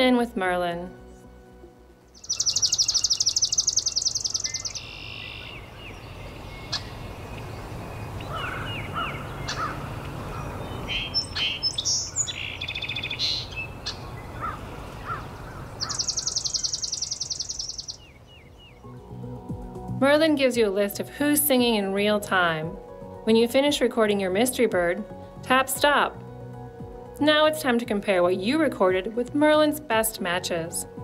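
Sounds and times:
bird chirps and calls: 2.2s - 19.0s
sparrow trill: 2.2s - 19.3s.

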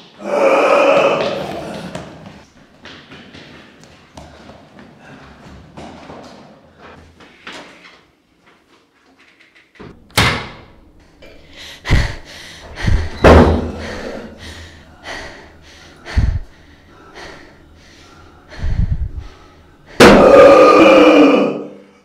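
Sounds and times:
quick frightened breathing: 11.5s - 20.0s.

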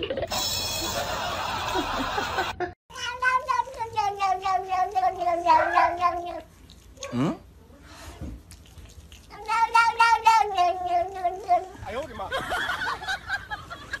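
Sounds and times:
cat yowling meow: 3.0s - 6.4s.

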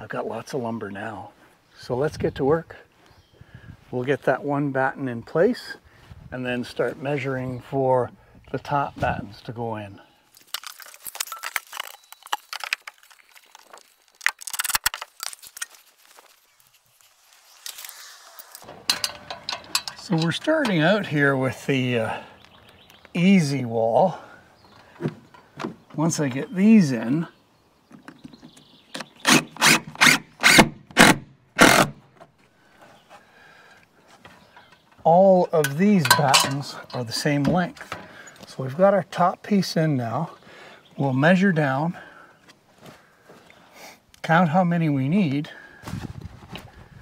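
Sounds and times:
faint handling noise: 10.3s - 21.7s, 34.0s - 38.6s
metal pieces clinking: 10.4s - 15.8s, 18.4s - 20.8s, 35.6s - 37.0s.

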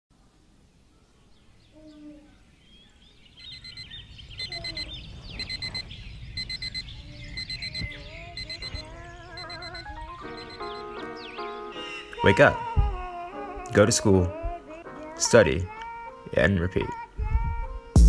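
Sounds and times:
alarm clock beeping: 3.5s - 10.9s.

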